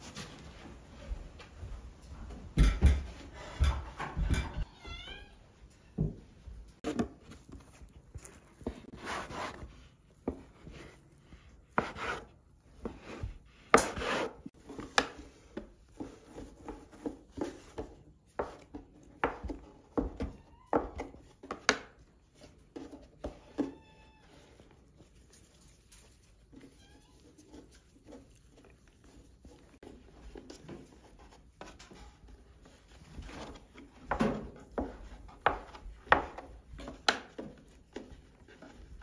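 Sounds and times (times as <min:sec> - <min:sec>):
dough rubbing on wooden board: 0:11.7 - 0:14.6.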